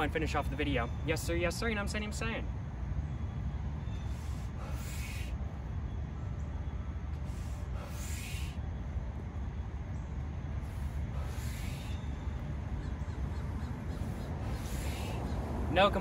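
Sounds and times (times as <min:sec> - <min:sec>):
wind rumble on microphone: 0:12.0 - 0:16.0.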